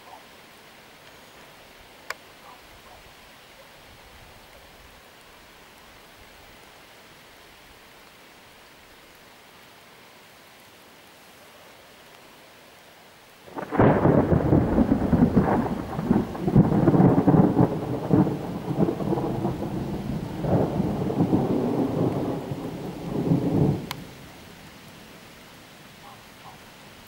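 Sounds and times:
rain hiss: 0.0 - 27.0
rolling thunder: 13.5 - 24.1.

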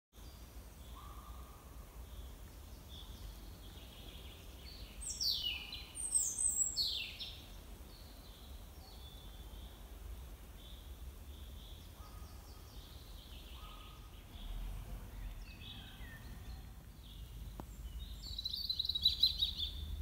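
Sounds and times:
songbirds singing: 0.2 - 20.0
steady low rumble: 14.2 - 20.0.

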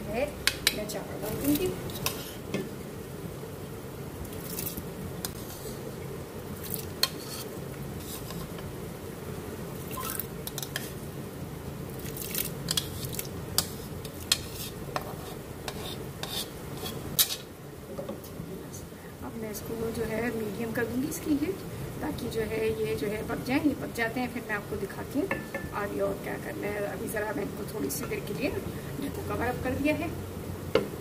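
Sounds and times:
rice clinking against metal pot: 25.3 - 25.8.

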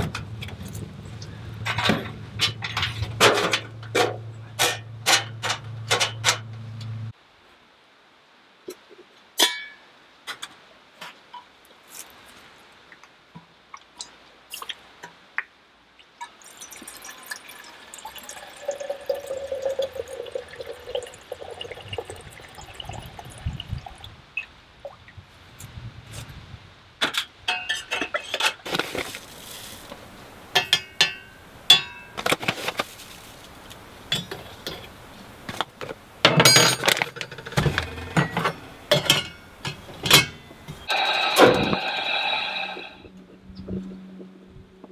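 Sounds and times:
water running into a metal pot: 16.3 - 24.1
bag rustling: 28.6 - 30.0, 32.4 - 33.6.

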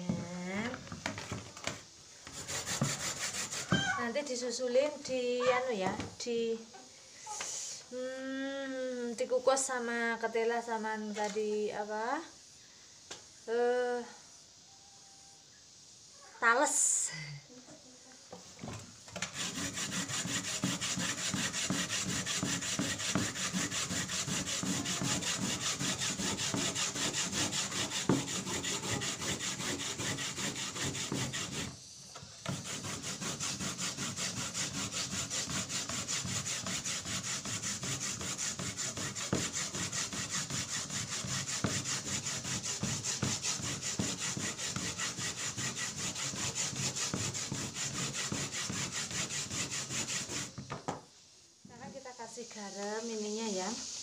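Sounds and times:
coconut scraping on metal grater: 2.4 - 4.2, 19.2 - 31.8, 32.4 - 50.6.

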